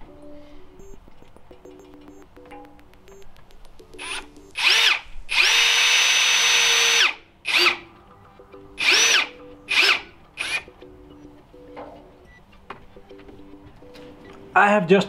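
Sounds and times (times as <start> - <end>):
hammer drill driving screws: 4.0 - 7.8, 8.8 - 10.7.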